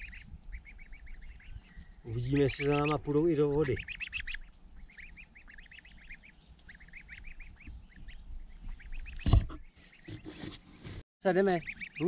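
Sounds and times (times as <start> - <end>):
goslings peeping: 0.0 - 10.6, 11.3 - 12.0
loud thump: 9.2 - 9.6.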